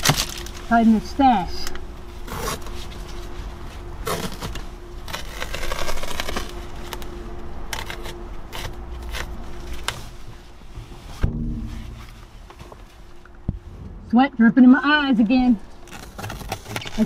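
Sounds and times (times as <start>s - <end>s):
plastic rustling: 0.0s - 13.4s, 15.6s - 17.0s
faint steady hum: 0.0s - 17.0s.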